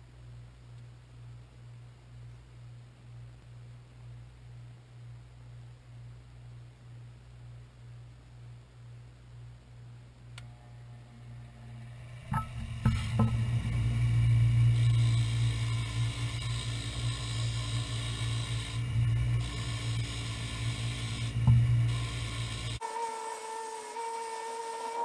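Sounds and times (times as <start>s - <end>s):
wire wheel spinning hum: 8.4s - 25.0s.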